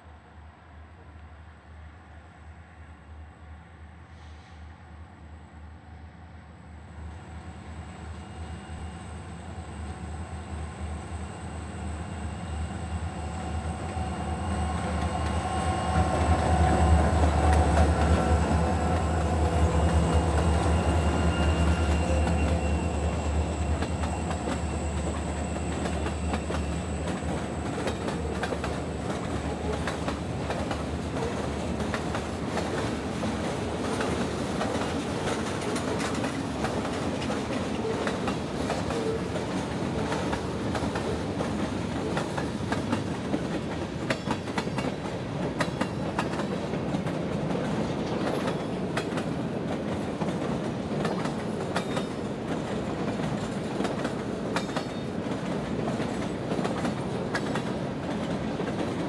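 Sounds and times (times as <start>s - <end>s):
diesel locomotives engine hum: 0.0s - 59.0s
train wheels clicking over rail joints: 14.8s - 59.0s.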